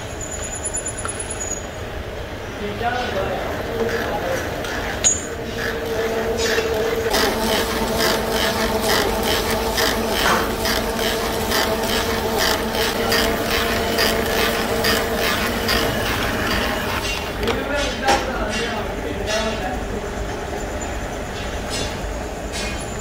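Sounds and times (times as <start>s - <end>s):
lathe hum: 0.0s - 17.6s
lathe ticking clatter: 5.0s - 23.0s.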